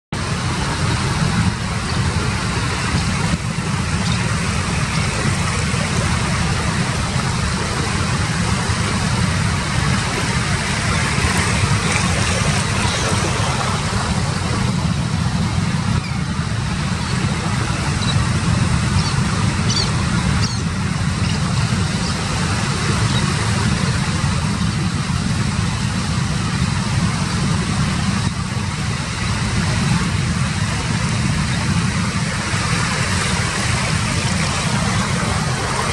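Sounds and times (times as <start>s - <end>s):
wind rumbling on microphone: 0.1s - 35.9s
ocean surf breaking: 0.2s - 35.9s
faint high bird calls: 19.0s - 21.4s.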